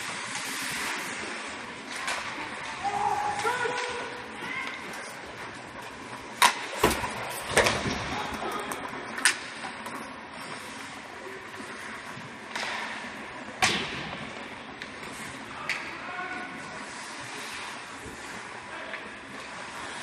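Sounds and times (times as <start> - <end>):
hockey sticks clacking puck: 1.8 - 10.1, 12.5 - 20.0
puck hitting boards: 6.3 - 9.4, 13.6 - 14.3.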